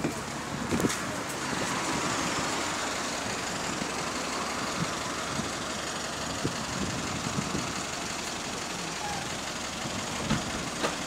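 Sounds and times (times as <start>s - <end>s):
bus engine idling: 0.0s - 11.0s
wet street noise: 0.0s - 11.0s.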